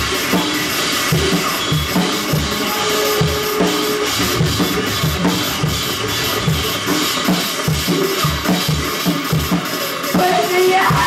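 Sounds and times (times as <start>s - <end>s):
cymbal wash: 0.0s - 11.0s
dense wall of guitar: 1.6s - 8.4s.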